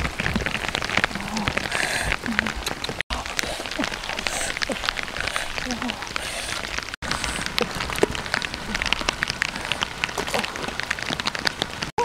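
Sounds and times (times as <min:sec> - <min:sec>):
dry grass rustling and crackling: 0:00.0 - 0:11.9.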